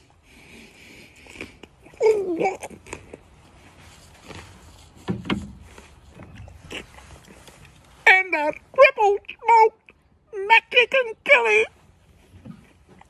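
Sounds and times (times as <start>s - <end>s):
man chewing food: 0.0s - 8.0s
wet mouth clicks: 1.0s - 3.4s.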